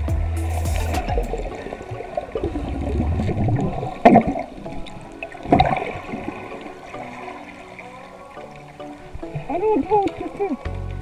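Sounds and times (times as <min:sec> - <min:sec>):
water rushing underwater: 0:00.3 - 0:11.0
faint background music: 0:03.9 - 0:11.0.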